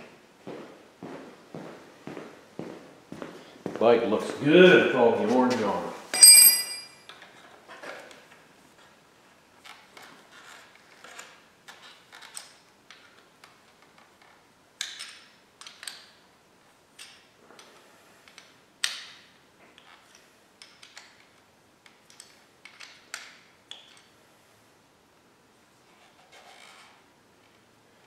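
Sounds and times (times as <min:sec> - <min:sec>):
metal clicks and clinks: 0:06.1 - 0:07.0.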